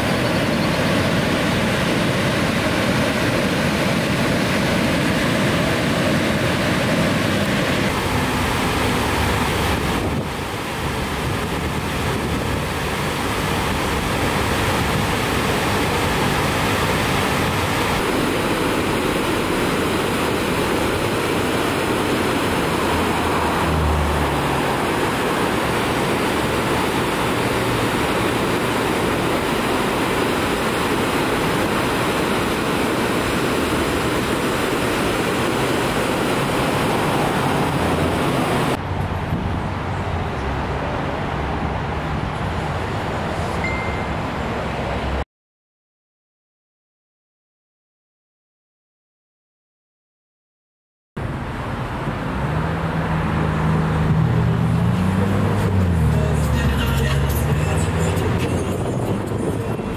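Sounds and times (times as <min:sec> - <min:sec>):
waterfall rushing: 0:00.0 - 0:39.0, 0:51.2 - 0:59.9.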